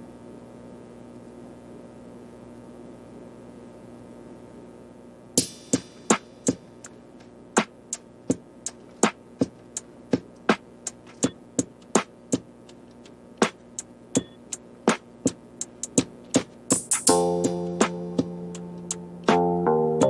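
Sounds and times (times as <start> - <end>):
percussive click beat: 5.4 - 19.5.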